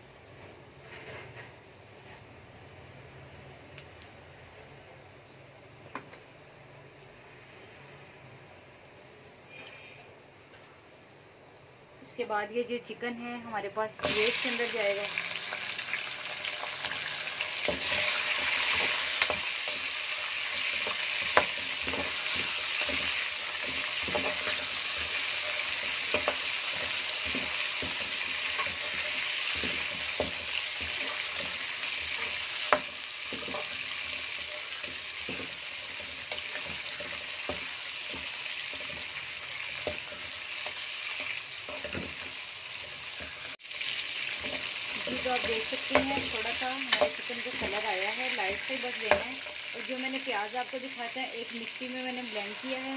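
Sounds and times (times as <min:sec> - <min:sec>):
chicken sizzling in hot oil: 0:13.6 - 0:52.9
steel ladle scraping a pan: 0:16.9 - 0:43.4.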